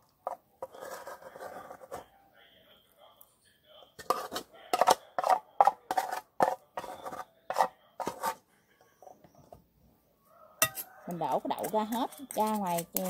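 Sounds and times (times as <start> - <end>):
metal spoon scraping metal pot: 0.2 - 2.1, 4.0 - 8.4, 10.6 - 13.0.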